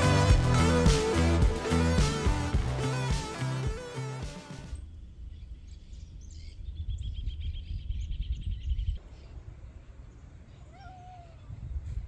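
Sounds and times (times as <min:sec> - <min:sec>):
wind rumbling on microphone: 0:05.3 - 0:09.1, 0:11.3 - 0:12.0.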